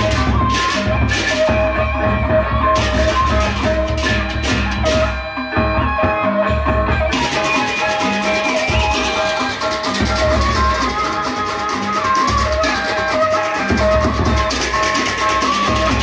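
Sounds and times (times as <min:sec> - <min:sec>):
big drum beats: 0:00.0 - 0:16.0
pitched metal tones: 0:00.0 - 0:16.0.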